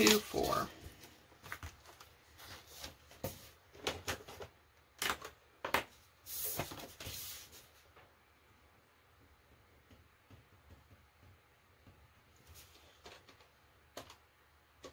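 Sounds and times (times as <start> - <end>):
paper rustling: 0.0 - 4.5.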